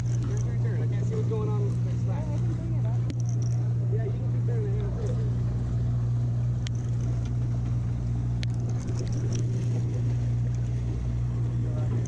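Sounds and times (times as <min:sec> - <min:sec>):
boat engine humming: 0:00.0 - 0:12.0
light clicks: 0:02.3 - 0:03.7, 0:06.6 - 0:07.8.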